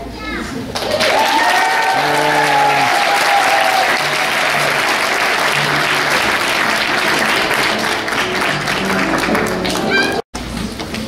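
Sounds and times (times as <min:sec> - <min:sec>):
audience applauding: 0:00.8 - 0:10.2
music playing: 0:03.8 - 0:10.2.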